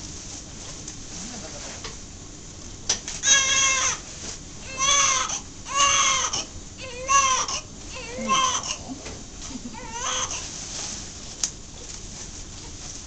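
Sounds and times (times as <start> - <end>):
baby crying: 3.2 - 4.0, 4.6 - 8.8, 9.7 - 10.4.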